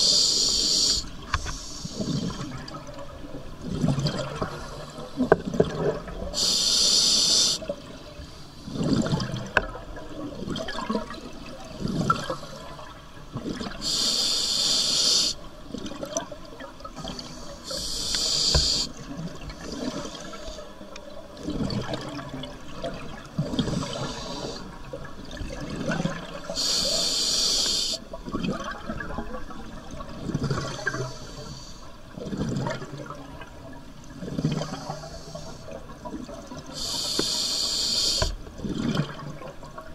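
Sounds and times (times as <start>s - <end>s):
regulator inhale hiss: 0.0s - 2.4s, 6.4s - 7.7s, 13.8s - 15.4s, 17.2s - 19.0s, 23.8s - 24.7s, 26.6s - 28.0s, 30.9s - 31.9s, 34.7s - 35.8s, 36.7s - 38.4s
exhaled bubbles burbling: 5.2s - 6.4s, 8.7s - 13.8s.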